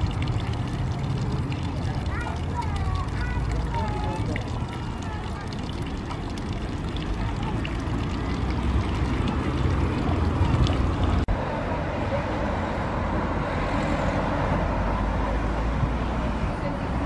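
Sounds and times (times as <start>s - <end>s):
faint voices: 0.3s - 12.6s.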